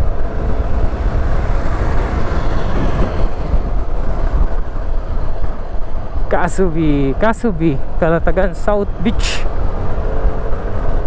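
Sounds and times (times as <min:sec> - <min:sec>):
scooter engine: 0:00.0 - 0:06.3
wind buffeting microphone: 0:00.0 - 0:11.0.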